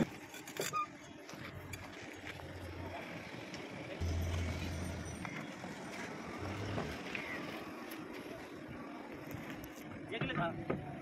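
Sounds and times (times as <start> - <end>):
low hum: 1.4 - 9.6.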